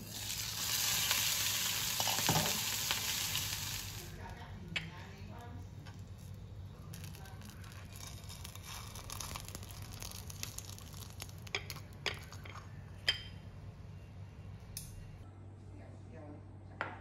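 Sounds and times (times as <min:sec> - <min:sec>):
frying pan hissing: 0:00.0 - 0:04.3.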